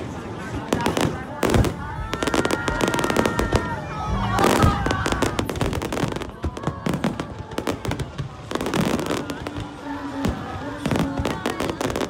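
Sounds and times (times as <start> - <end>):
crowd voices: 0.0 - 12.0
fireworks bursting and crackling: 0.0 - 12.0.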